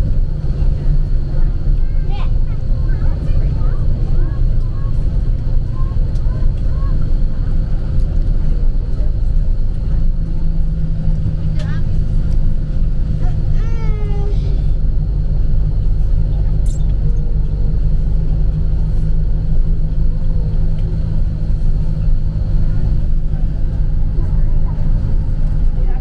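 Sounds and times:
vehicle engine and road rumble: 0.0 - 26.0.

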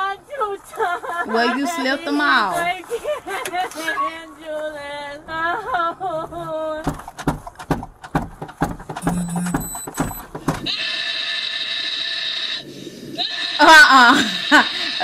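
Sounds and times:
handling knocks and clicks: 6.3 - 10.7
steady noise: 6.8 - 10.7.

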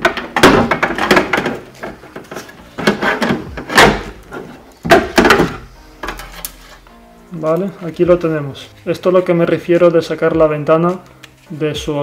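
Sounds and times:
plastic and metal knocks and rattles: 0.0 - 4.2, 4.8 - 5.6.

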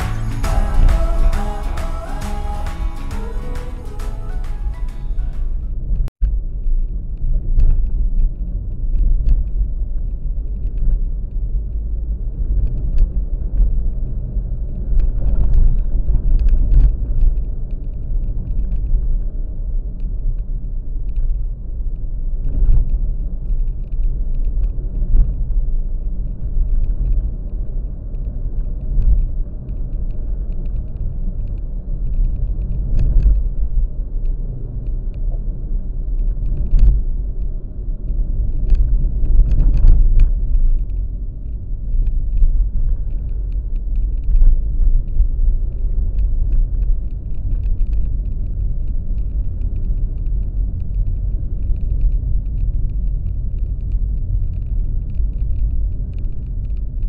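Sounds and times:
vehicle rumbling on road: 5.5 - 57.0
faint clicks and knocks: 38.5 - 57.0.

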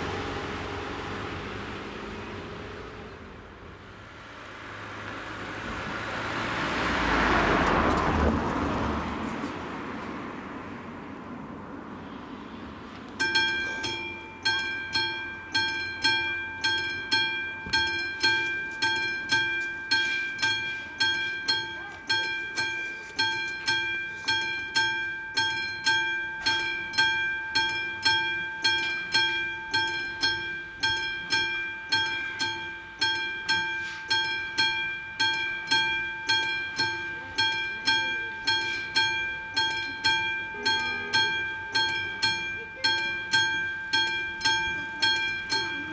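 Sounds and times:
level crossing warning bell: 13.1 - 45.9.

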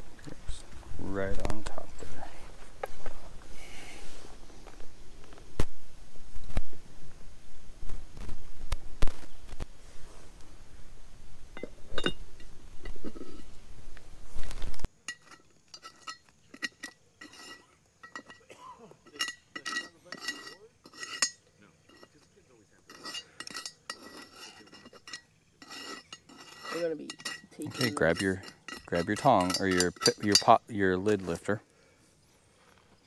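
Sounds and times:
steady hiss: 0.0 - 33.0
utensils clinking on metal cookware: 15.0 - 31.5.

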